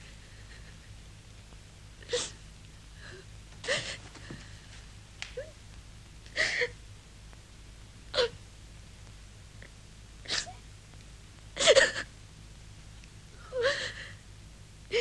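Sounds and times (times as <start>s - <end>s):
woman sobbing: 2.0s - 2.4s, 3.0s - 4.3s, 6.3s - 6.8s, 11.6s - 12.1s, 13.4s - 14.2s.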